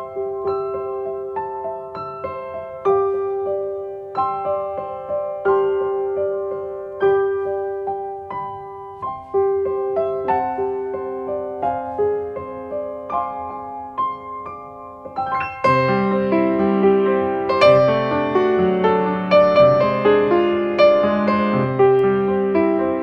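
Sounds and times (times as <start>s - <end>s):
piano melody: 0.0s - 23.0s.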